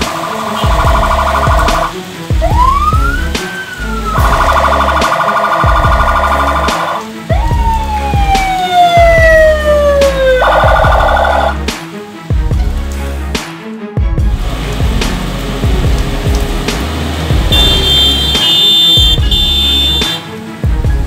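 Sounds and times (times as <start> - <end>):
steady bass beat: 0.0 - 3.4, 4.0 - 11.7, 12.4 - 13.4, 14.0 - 20.1
emergency vehicle siren: 0.0 - 11.6.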